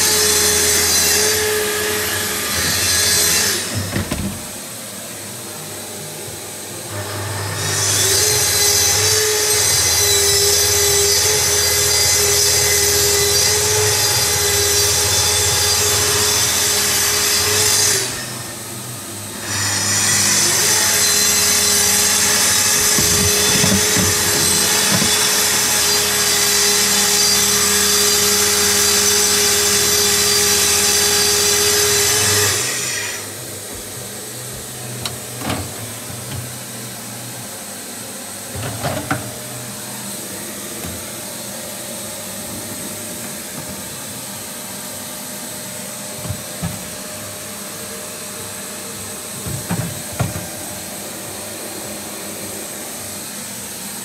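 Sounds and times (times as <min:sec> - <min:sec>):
loud machine whir: 0:00.0 - 0:54.0
plastic freezer drawers clattering: 0:02.4 - 0:04.6, 0:21.5 - 0:26.0, 0:33.8 - 0:36.7, 0:38.5 - 0:39.4, 0:49.4 - 0:50.6.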